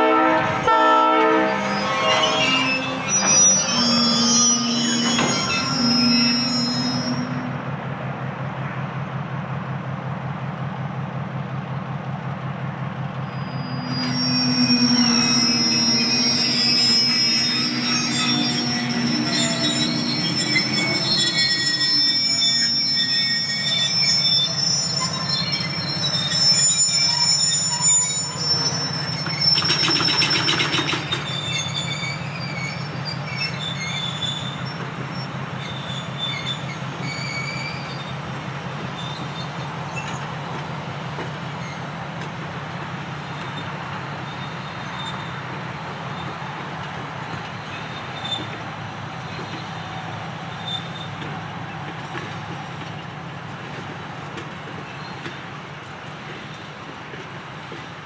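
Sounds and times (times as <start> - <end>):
freight train wheels squealing: 0.0 - 9.7, 12.2 - 58.0
train rolling rumble: 0.0 - 58.0
loud grating burst: 13.5 - 23.7.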